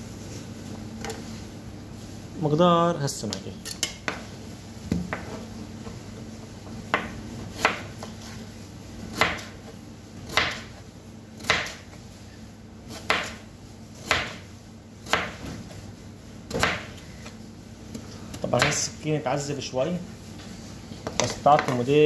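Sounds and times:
knife slicing potato: 11.4 - 11.9, 12.9 - 13.4, 14.0 - 15.6, 16.5 - 17.2.

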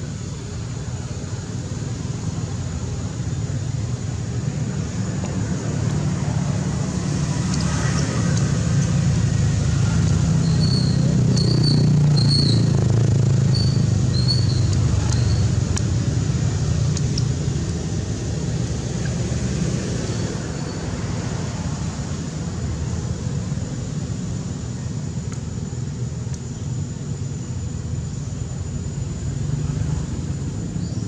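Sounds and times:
low engine rumble: 0.0 - 31.0.

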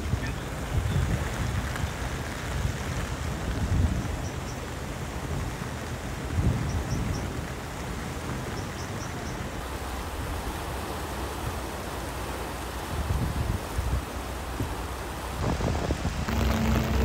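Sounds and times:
wind buffeting microphone: 0.0 - 9.6, 12.8 - 17.0
river rushing water: 7.4 - 17.0.

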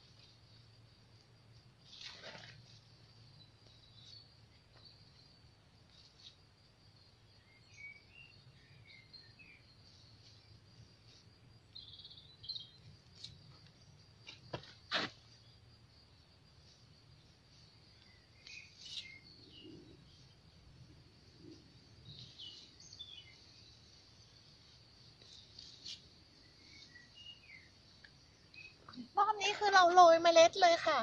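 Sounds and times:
insects chirring: 0.0 - 31.0
bird chirps: 11.7 - 12.8, 17.9 - 20.3, 22.0 - 23.8.

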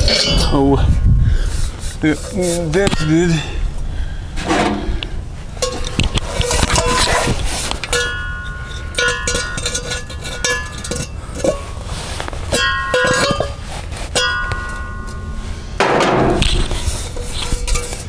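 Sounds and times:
metal muffler knocking and clanking: 4.4 - 5.0, 7.9 - 11.7, 12.5 - 18.0.

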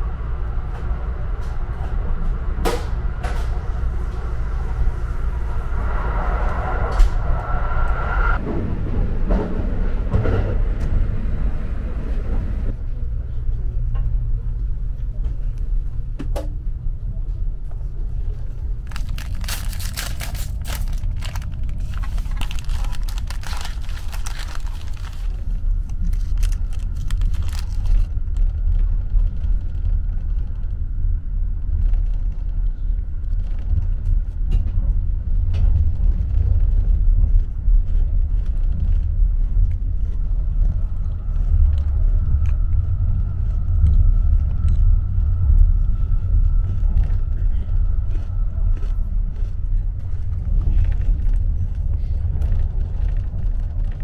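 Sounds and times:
train rumbling: 0.0 - 54.0
foil wrapper crinkling and tearing: 18.8 - 28.5.

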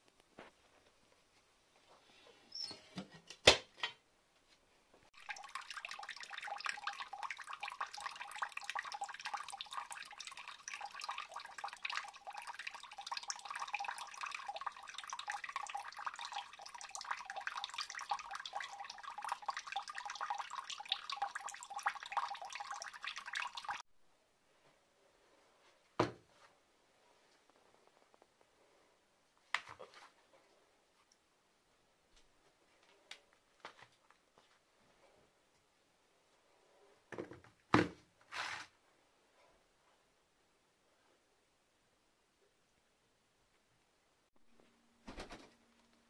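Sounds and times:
water splashing into a tub: 5.2 - 23.8.

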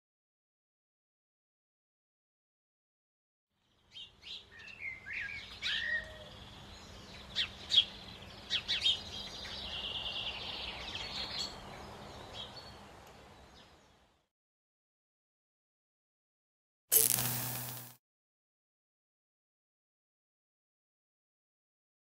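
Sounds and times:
wild birds chirping: 3.6 - 14.2
background hiss: 16.9 - 18.0.

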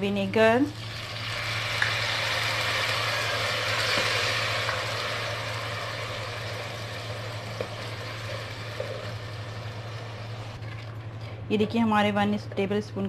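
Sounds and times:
steady low hum: 0.0 - 13.0
vinegar sizzling in hot oil: 0.6 - 10.9.

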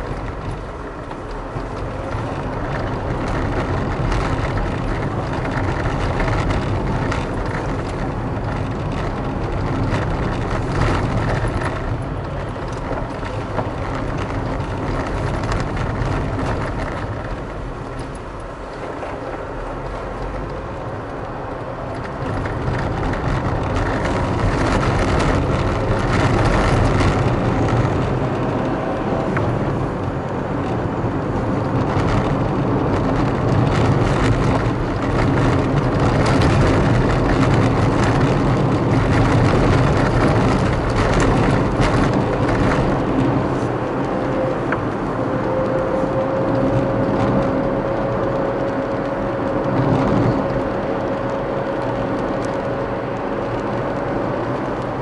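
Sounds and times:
car engine and tyre noise: 0.0 - 55.0.

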